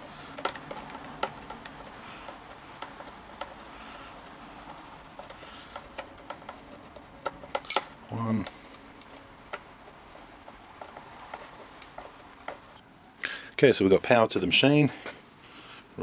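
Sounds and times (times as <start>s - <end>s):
screwdriver metallic clicks: 0.0s - 1.8s.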